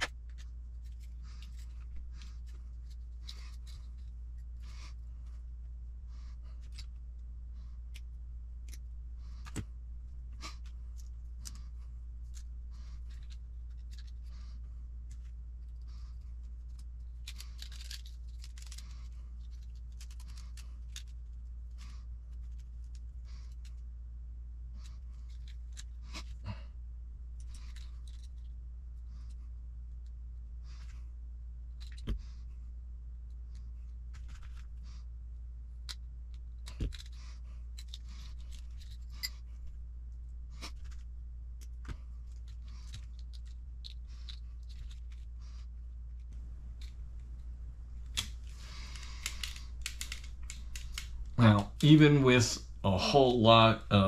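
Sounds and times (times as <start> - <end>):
plastic parts scraping and rubbing: 0.0 - 5.4, 6.3 - 7.2, 7.8 - 23.8, 24.8 - 26.4, 27.4 - 28.6, 31.7 - 32.5, 33.5 - 35.0, 35.8 - 39.8, 40.5 - 52.0
steady low hum: 0.0 - 54.0
sharp plastic clicks: 48.0 - 51.3.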